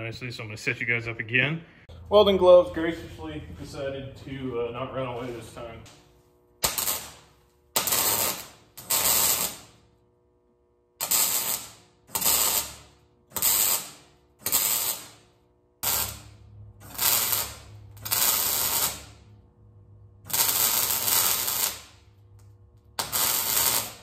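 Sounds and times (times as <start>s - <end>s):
welding arc crackle: 5.9s - 10.0s, 11.0s - 24.0s.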